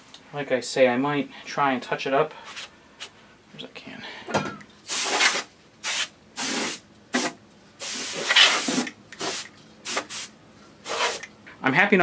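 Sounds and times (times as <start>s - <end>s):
spray can hissing: 4.9s - 11.3s.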